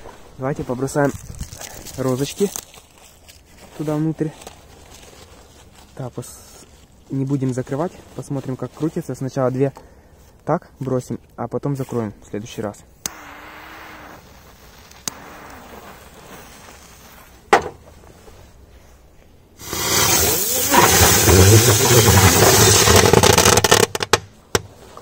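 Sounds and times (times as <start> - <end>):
fuse hissing: 13.1 - 16.0, 19.6 - 22.9
firecrackers rushing hiss in drum: 19.6 - 23.7
firecracker snap: 19.6 - 24.0.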